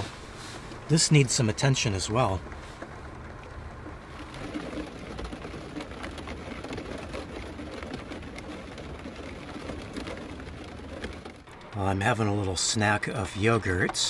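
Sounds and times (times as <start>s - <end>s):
rain on a van roof: 0.0s - 14.0s.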